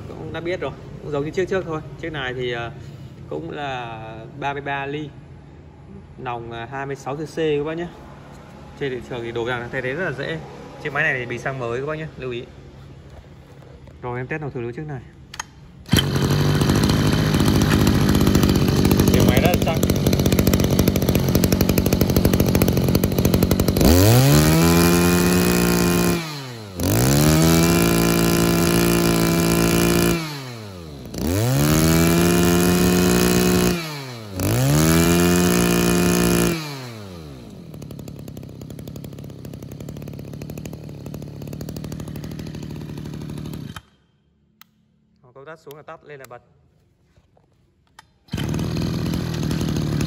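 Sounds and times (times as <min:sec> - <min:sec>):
brush cutter engine revving: 0:15.2 - 0:44.0, 0:47.9 - 0:50.0.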